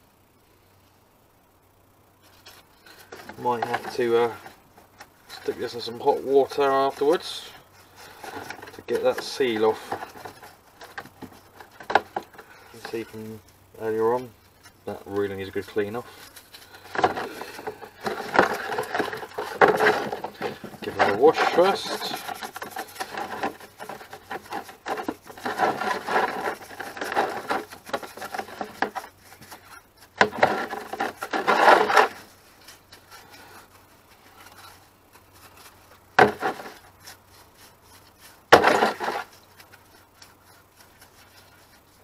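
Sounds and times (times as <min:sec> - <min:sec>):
brush scrubbing metal tube: 0:02.3 - 0:42.0.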